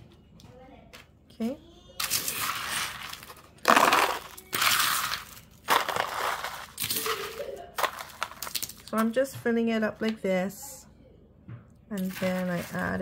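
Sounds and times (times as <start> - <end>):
nuts rattling: 2.0 - 9.1
metal spoon scraping sheet pan: 12.0 - 13.0.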